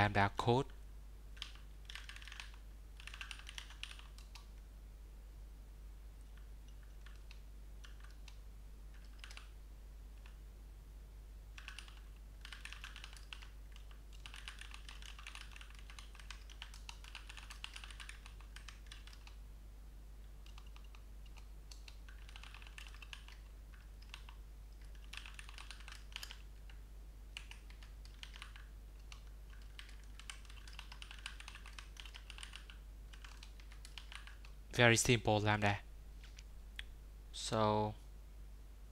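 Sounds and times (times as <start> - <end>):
steady low hum: 0.0 - 38.9
typing on computer keyboard: 1.4 - 4.5, 6.3 - 9.5, 11.6 - 19.4, 20.4 - 34.6.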